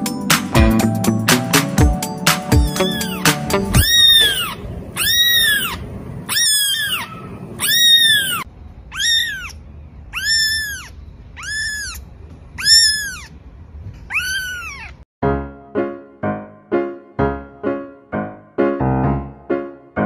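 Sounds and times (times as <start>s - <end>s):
piano music: 0.0s - 4.4s, 15.2s - 20.0s
kitten mewing: 2.6s - 13.4s, 14.1s - 15.0s.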